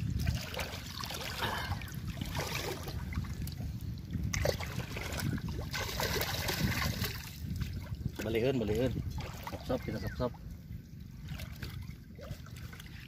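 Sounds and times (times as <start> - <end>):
steady low rumble: 0.0 - 9.4
seawater splashing and sloshing: 0.0 - 13.0.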